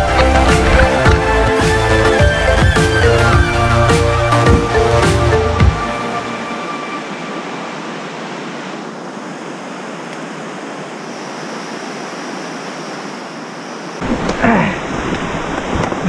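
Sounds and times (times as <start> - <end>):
whitewater river rushing: 0.0 - 12.5.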